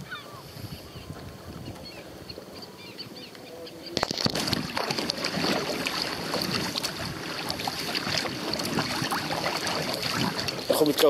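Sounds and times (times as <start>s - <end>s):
water splashing against kayak: 4.0s - 11.0s.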